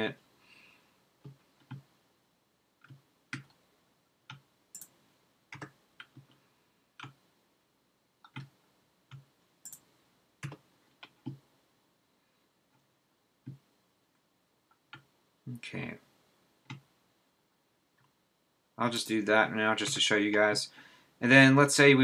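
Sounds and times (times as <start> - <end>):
mouse clicking: 4.3 - 6.4, 8.2 - 11.4.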